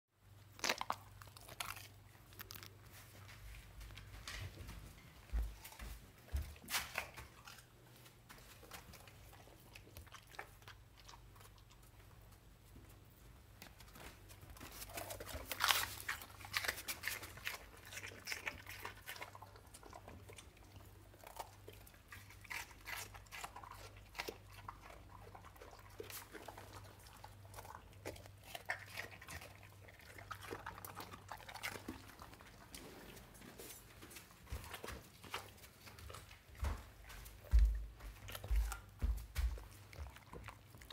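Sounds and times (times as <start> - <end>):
faint low hum: 0.2 - 40.9
dog chewing and crunching food: 0.3 - 40.9
dog licking floor: 0.9 - 12.4, 13.6 - 40.9.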